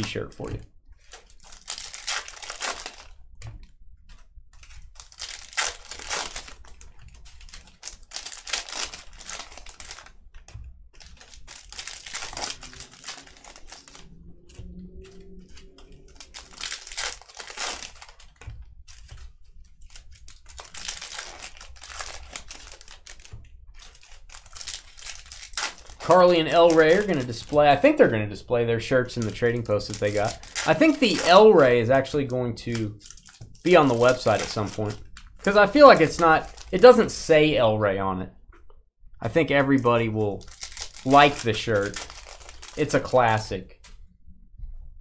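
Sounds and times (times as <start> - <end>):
foil wrappers tearing and crinkling: 1.0 - 3.2, 4.6 - 10.2, 10.9 - 14.1, 15.0 - 28.1, 29.0 - 37.3, 39.6 - 43.5.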